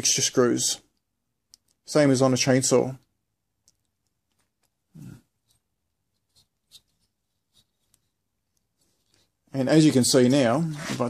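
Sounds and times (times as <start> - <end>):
faint clicks: 0.9 - 1.8.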